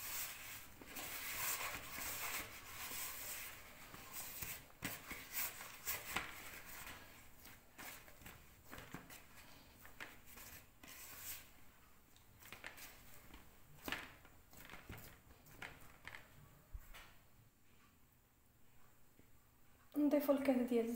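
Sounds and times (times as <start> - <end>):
hands squishing butter in bowl: 0.0 - 16.3.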